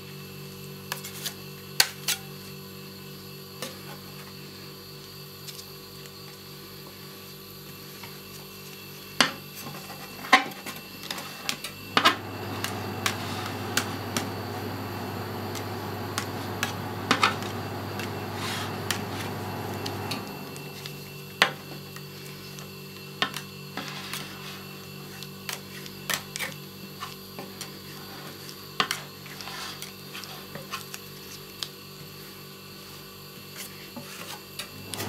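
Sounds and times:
steady low hum: 11.8 - 21.1.

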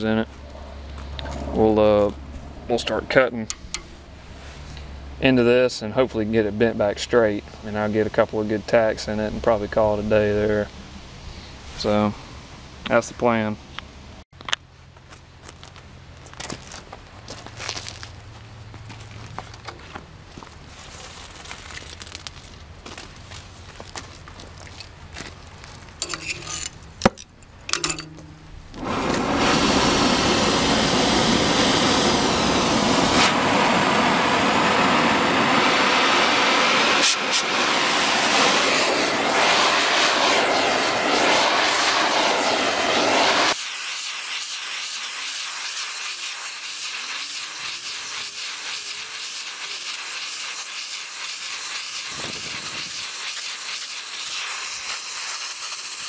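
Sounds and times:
cutting torch hissing: 28.8 - 56.0.

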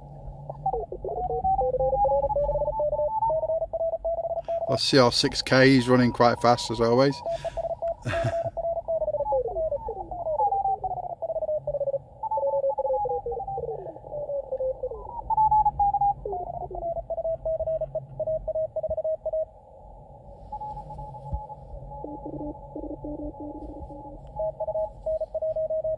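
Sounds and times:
morse code tones: 0.0 - 19.6, 20.4 - 25.9
tones sweeping down in pitch: 20.5 - 25.9.

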